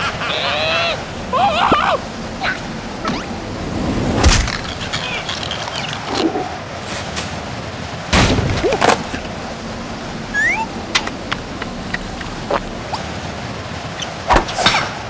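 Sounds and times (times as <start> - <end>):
short rising squeak: 10.3 - 10.7.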